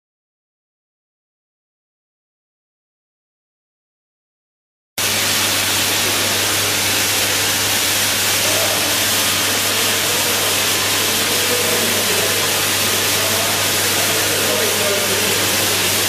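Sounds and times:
low machine hum: 5.0 - 16.0.

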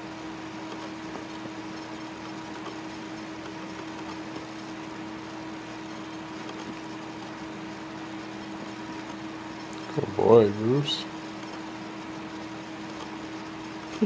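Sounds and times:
mechanical hum with hiss: 0.0 - 14.0.

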